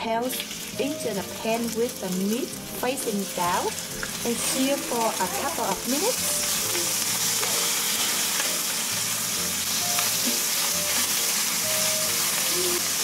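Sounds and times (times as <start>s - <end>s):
lobster sizzling in hot oil: 0.0s - 13.0s.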